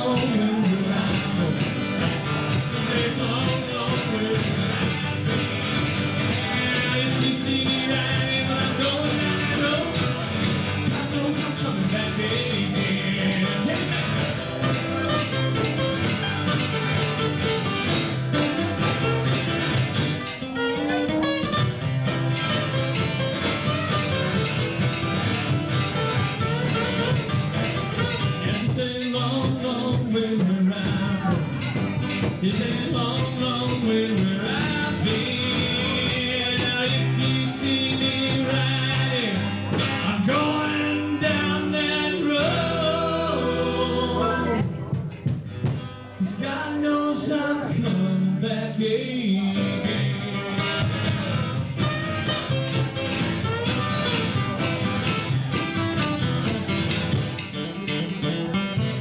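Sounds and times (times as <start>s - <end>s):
acoustic guitars playing: 0.0s - 59.0s.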